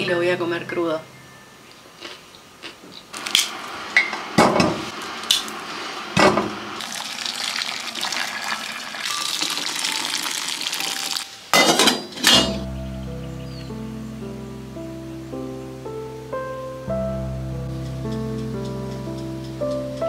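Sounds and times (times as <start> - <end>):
water pouring: 5.1 - 11.3.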